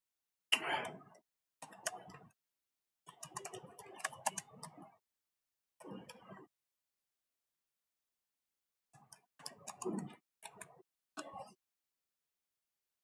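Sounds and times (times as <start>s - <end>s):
keyboard and mouse clicking: 0.6s - 2.4s, 3.1s - 4.8s, 5.8s - 6.4s, 9.0s - 11.4s.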